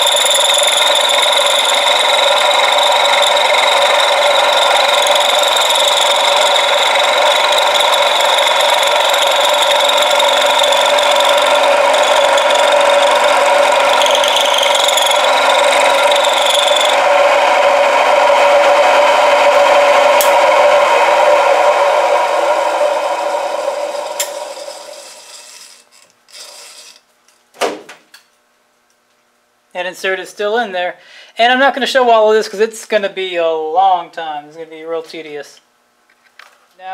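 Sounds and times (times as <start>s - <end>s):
milling machine cutting steel: 0.0s - 27.0s.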